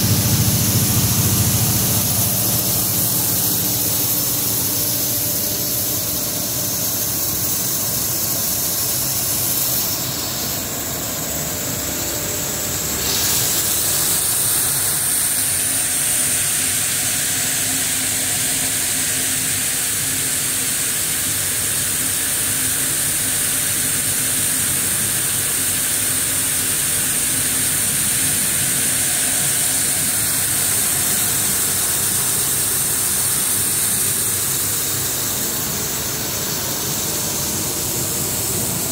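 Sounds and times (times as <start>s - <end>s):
loud airy hiss: 0.0s - 38.9s
steady mechanical hum: 0.0s - 38.9s.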